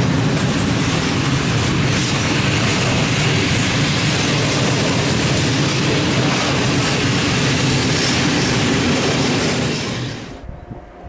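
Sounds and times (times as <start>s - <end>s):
freight train rolling past: 0.0s - 11.0s.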